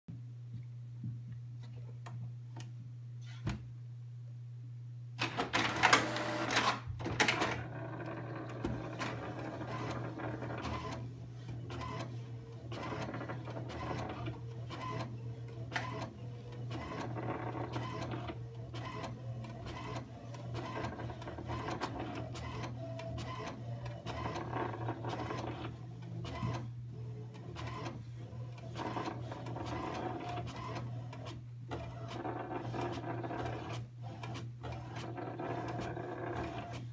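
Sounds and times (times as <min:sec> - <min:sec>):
printer mechanism clatter: 0:05.2 - 0:26.7.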